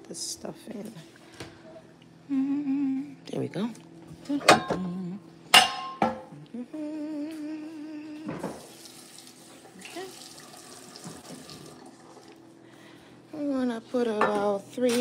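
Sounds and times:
cookware clanking against glass bowls: 5.6s - 6.2s.

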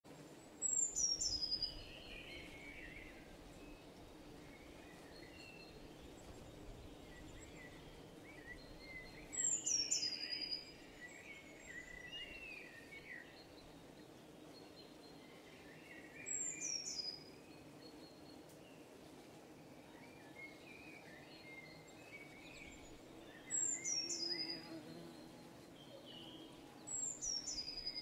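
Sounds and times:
light wind: 0.1s - 28.0s
birds calling in background: 0.3s - 28.0s.

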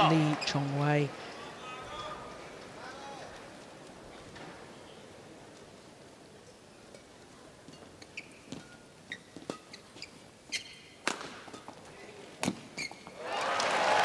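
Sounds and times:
shoes squeaking on court floor: 7.6s - 13.2s.

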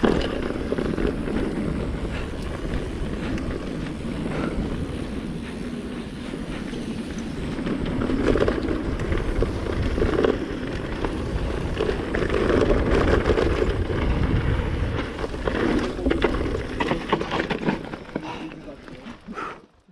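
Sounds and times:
wind on microphone: 0.0s - 16.8s
bike rattling: 0.0s - 19.5s
tyres crunching over dirt: 6.7s - 19.2s.

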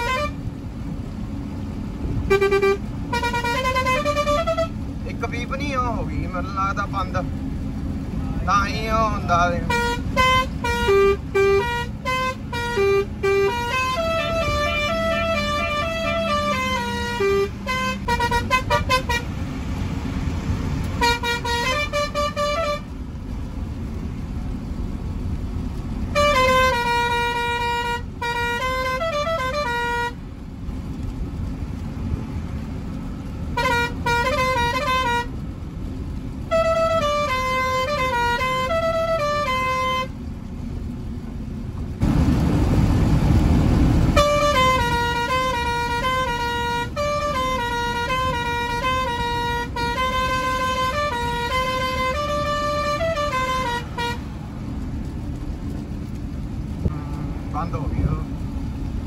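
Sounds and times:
truck musical horn tunes: 0.0s - 0.5s, 2.2s - 4.8s, 9.6s - 19.3s, 21.0s - 22.9s, 26.1s - 30.2s, 33.5s - 35.4s, 36.4s - 40.2s, 44.1s - 54.3s
truck engine and road noise: 0.0s - 59.0s
low rumble: 54.2s - 59.0s.

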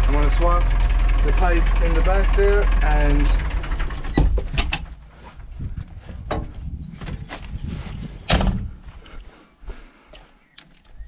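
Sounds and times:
knocks and clatter: 3.2s - 5.0s, 5.6s - 7.4s
heavy thud: 8.2s - 8.8s.

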